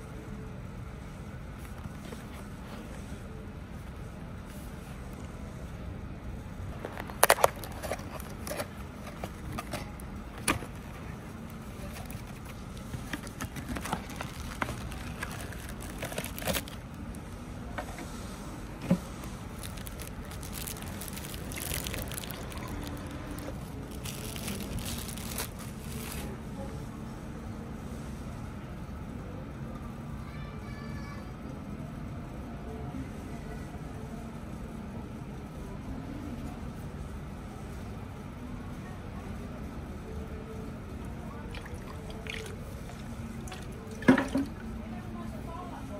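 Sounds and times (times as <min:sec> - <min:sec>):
plastic bag crackling: 0:06.8 - 0:10.0, 0:11.8 - 0:17.2, 0:19.2 - 0:26.3.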